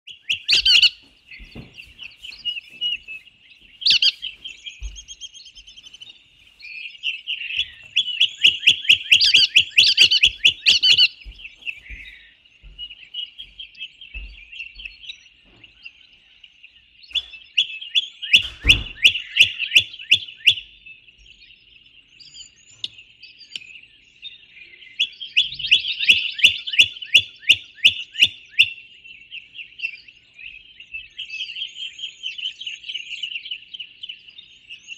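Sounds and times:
birds trilling chatter: 0:00.0 - 0:34.9
bird sharp repeated notes: 0:00.1 - 0:06.0, 0:07.1 - 0:15.7, 0:17.1 - 0:21.1, 0:25.0 - 0:29.9.

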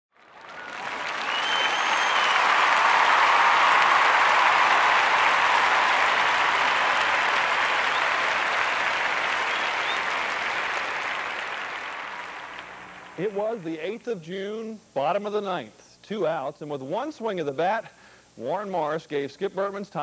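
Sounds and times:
crowd cheering and applauding: 0:00.1 - 0:13.4.

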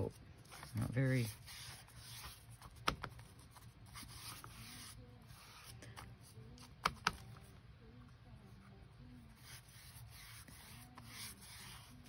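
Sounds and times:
sponge scrubbing paper: 0:09.4 - 0:12.0.

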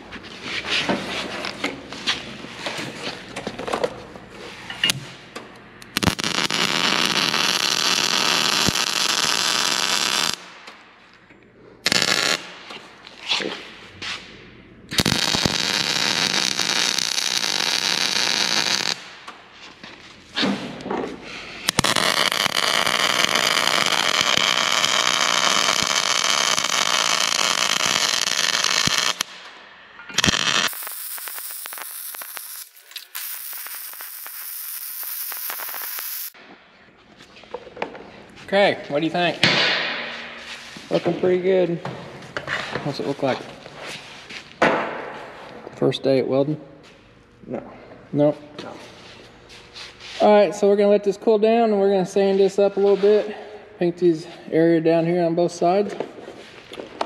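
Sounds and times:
welder arc crackling: 0:05.8 - 0:10.8, 0:11.8 - 0:12.8, 0:14.9 - 0:19.4, 0:21.7 - 0:29.6, 0:30.2 - 0:36.4.

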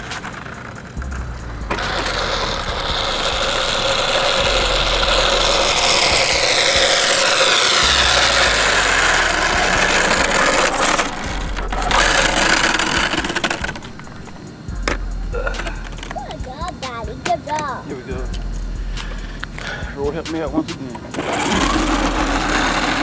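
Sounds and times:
rc car motor whine: 0:00.0 - 0:15.0, 0:21.0 - 0:23.0
tyre noise on asphalt: 0:00.0 - 0:15.0.

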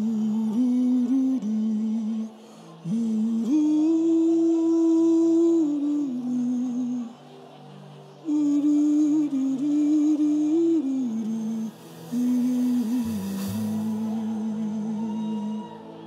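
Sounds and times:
soft keyboard pad: 0:00.0 - 0:16.0
breaths: 0:02.3 - 0:02.8
man humming into a microphone: 0:08.2 - 0:15.7.

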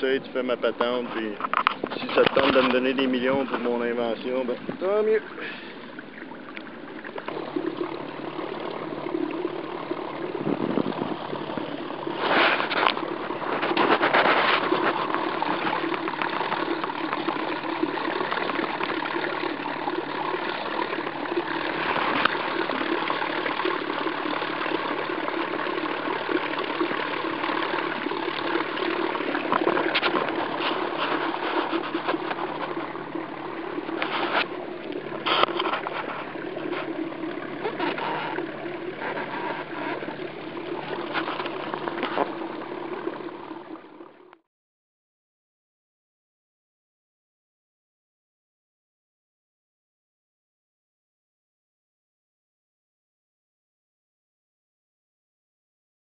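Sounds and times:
water rushing and spraying: 0:00.2 - 0:43.7.

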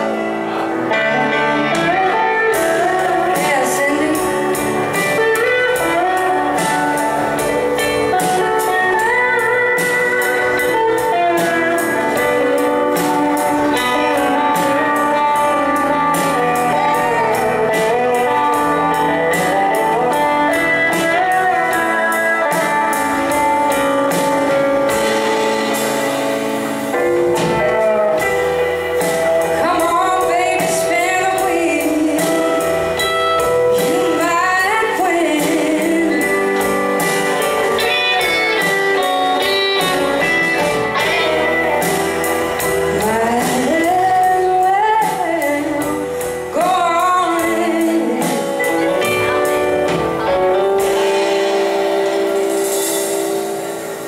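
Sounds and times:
live band playing: 0:00.0 - 0:54.0
woman singing: 0:01.5 - 0:23.4, 0:29.4 - 0:33.1, 0:33.7 - 0:38.2, 0:41.0 - 0:49.6.

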